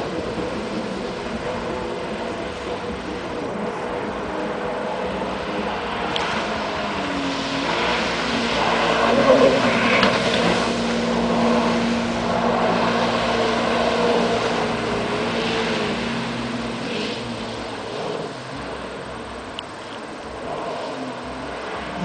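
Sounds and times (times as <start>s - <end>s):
jet ski engine: 0.0s - 22.0s.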